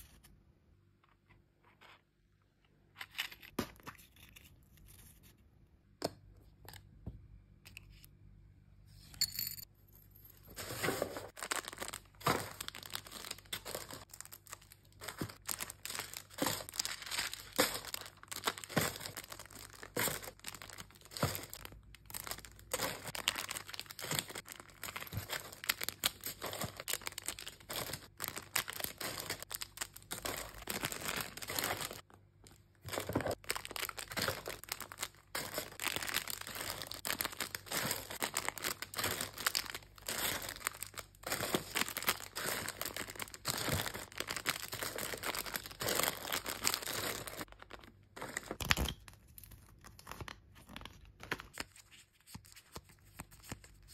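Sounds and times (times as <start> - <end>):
plastic and tissue paper crinkling: 10.5 - 48.6.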